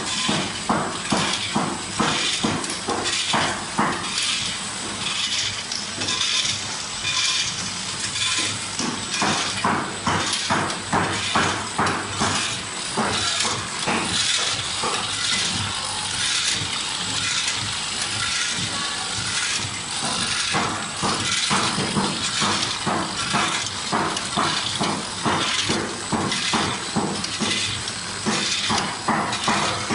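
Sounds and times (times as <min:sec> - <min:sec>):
mechanical clicking and clattering: 0:00.0 - 0:29.9
snack sticks rattling into hopper: 0:02.1 - 0:29.9.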